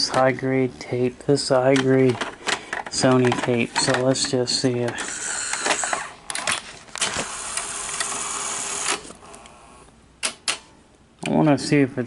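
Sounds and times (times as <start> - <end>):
tape deck mechanism clicks: 1.7 - 9.2
tape deck mechanism whirring: 2.2 - 9.5.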